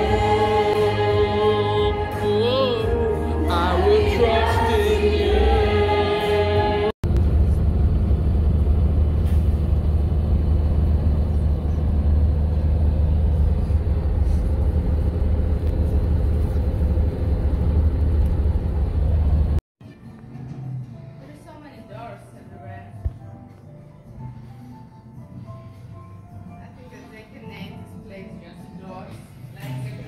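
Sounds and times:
person singing: 0:00.0 - 0:06.9
bus engine and road rumble: 0:00.0 - 0:19.6.

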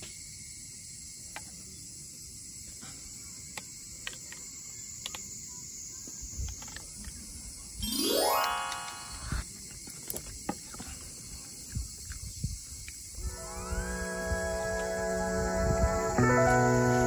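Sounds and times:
insect chirring: 0:03.4 - 0:14.2.

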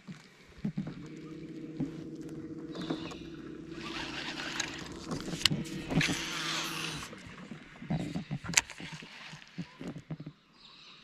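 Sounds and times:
steady motor hum: 0:00.5 - 0:08.8
fishing reel spool whirring: 0:00.7 - 0:08.8.

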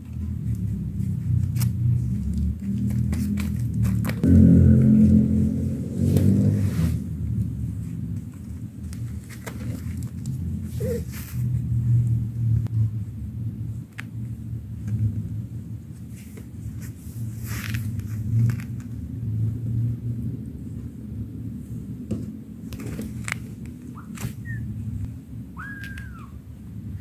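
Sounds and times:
kittens rustling on a pad: 0:00.0 - 0:04.2, 0:07.3 - 0:11.7, 0:13.7 - 0:19.0, 0:22.7 - 0:24.4
low steady rumble: 0:00.0 - 0:27.0.

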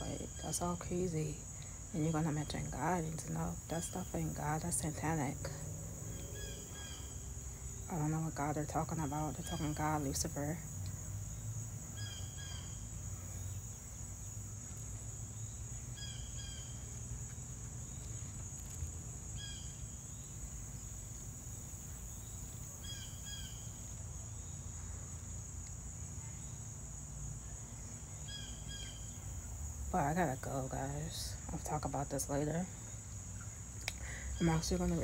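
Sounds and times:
insects high-pitched drone: 0:00.0 - 0:35.0.

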